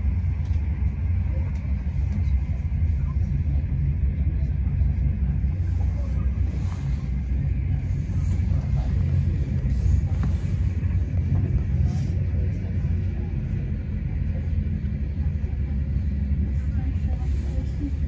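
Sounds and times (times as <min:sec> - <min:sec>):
train rumbling: 0:00.0 - 0:18.0.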